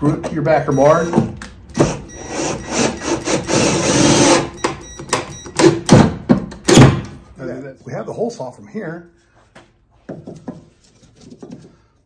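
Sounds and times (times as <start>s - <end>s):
drill driving a screw: 1.8s - 4.5s.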